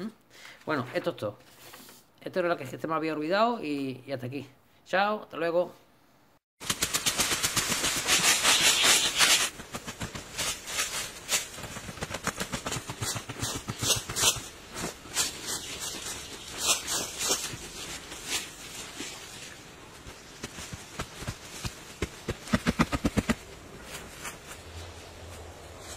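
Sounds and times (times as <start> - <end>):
hand tools digging stony soil: 6.6 - 24.7.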